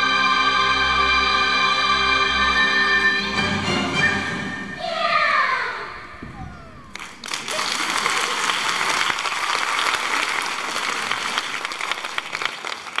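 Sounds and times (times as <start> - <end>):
audience applause: 6.8 - 13.0.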